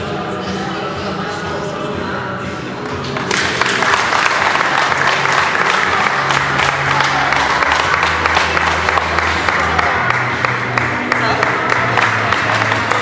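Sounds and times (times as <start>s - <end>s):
people clapping: 2.8s - 13.0s.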